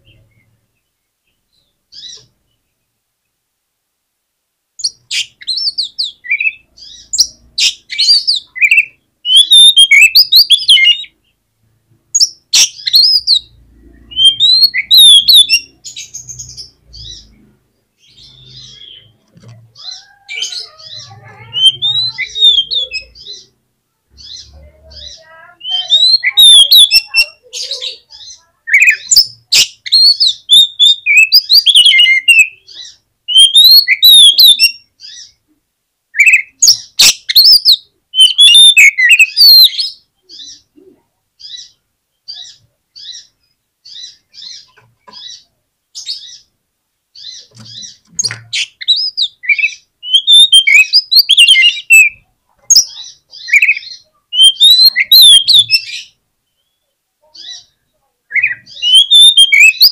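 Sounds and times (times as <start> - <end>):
bird singing varied whistles: 7.2 - 11.1, 14.1 - 15.7, 25.7 - 27.2, 28.8 - 32.6, 33.3 - 34.8, 36.2 - 40.0, 48.2 - 52.2, 52.8 - 56.1, 58.4 - 59.9.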